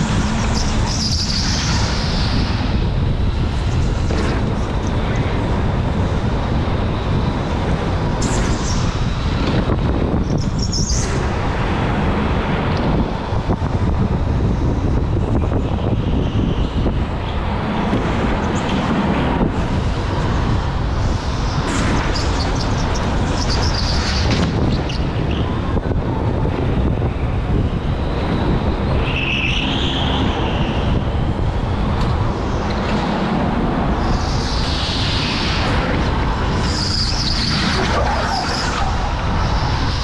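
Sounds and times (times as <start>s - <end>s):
go-kart rumble: 0.0s - 40.0s
wind on microphone: 0.0s - 40.0s
high squeals: 36.5s - 40.0s.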